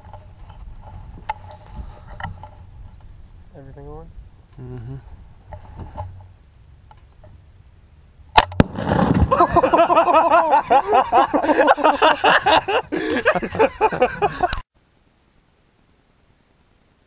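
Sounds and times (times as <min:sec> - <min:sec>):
rifle shot: 0:08.3 - 0:09.5
target detonating crack: 0:08.3 - 0:09.7.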